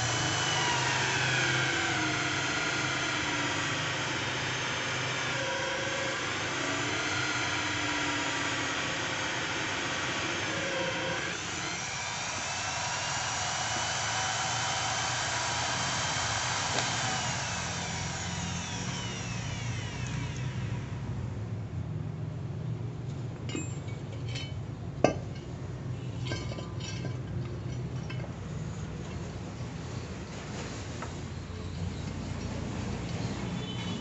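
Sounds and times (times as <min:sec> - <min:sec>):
electric drill drilling: 0:00.0 - 0:21.1
drill motor winding down: 0:00.0 - 0:21.2.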